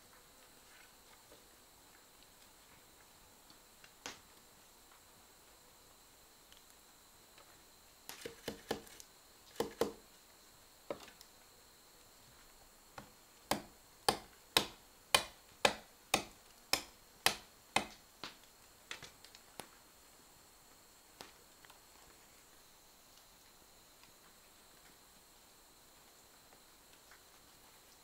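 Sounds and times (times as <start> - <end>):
knife chopping on wooden log: 8.1 - 10.0, 13.5 - 18.0.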